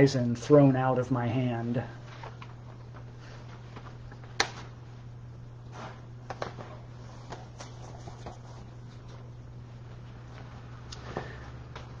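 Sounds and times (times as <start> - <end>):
paper rustling and tapping: 2.1 - 4.7.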